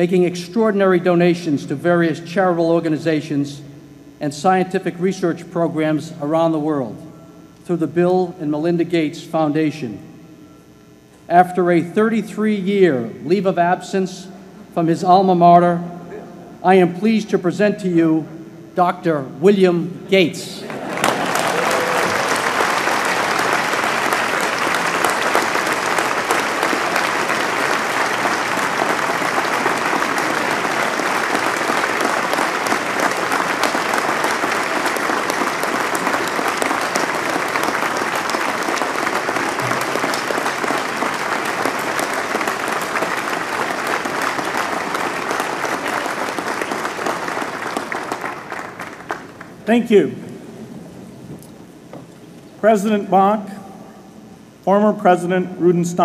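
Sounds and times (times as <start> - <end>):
large crowd applauding: 20.6 - 49.6.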